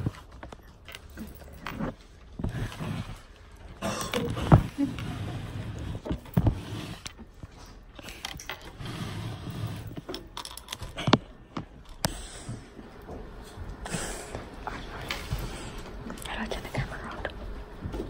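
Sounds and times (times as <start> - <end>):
phone scraping and rubbing: 1.6 - 3.5, 4.2 - 7.6, 8.6 - 10.1.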